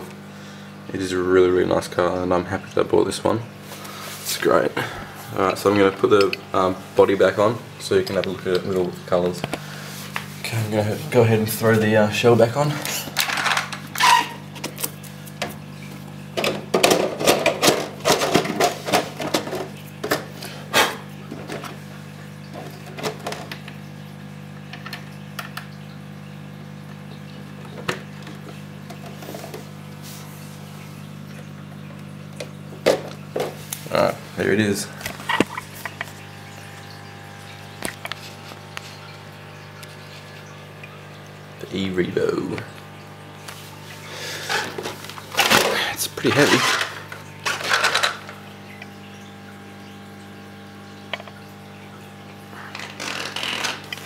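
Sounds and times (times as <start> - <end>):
steady low hum: 0.0 - 23.6
plastic clicks and rattles: 46.4 - 48.4.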